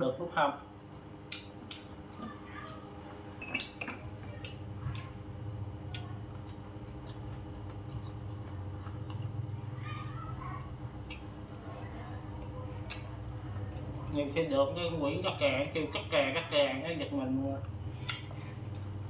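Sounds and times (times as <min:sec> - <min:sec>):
utensils clinking on ceramic bowls: 0:03.4 - 0:04.0.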